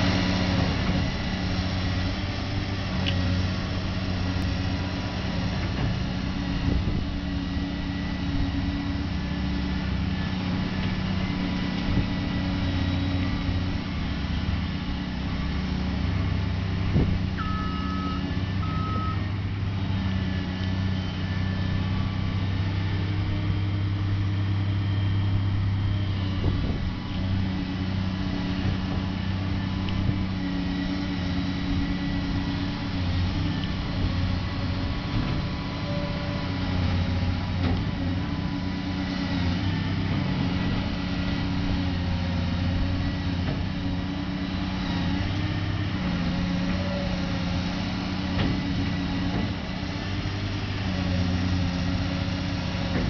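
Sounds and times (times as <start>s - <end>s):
excavator diesel engine running: 0.0s - 53.0s
short beeps: 17.4s - 19.2s.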